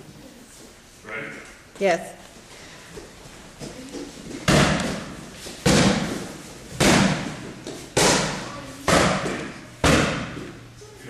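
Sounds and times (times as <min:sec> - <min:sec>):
sharp slaps on focus pad: 0:06.8 - 0:07.4, 0:08.0 - 0:10.4.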